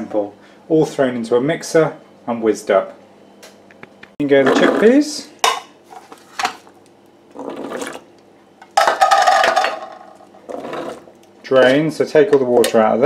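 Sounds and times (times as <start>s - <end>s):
chickpeas clattering into plastic bowl: 8.8s - 10.0s.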